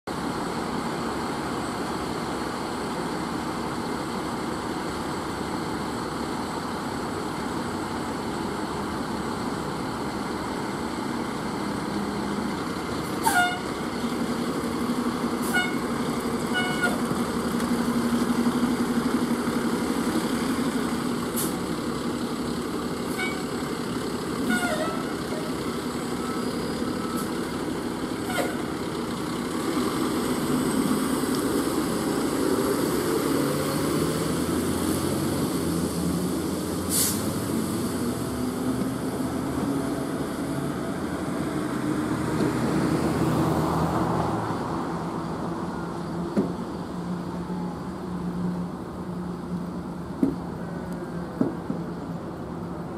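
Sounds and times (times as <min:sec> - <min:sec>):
diesel engine accelerating: 0:00.2 - 0:52.9
air brake hisses: 0:21.4 - 0:21.6, 0:36.8 - 0:37.4.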